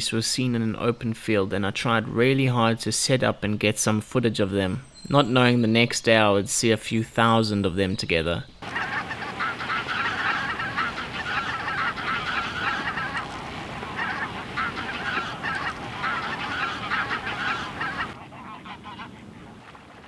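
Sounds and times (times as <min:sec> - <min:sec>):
geese honking in flight: 0:08.6 - 0:20.0.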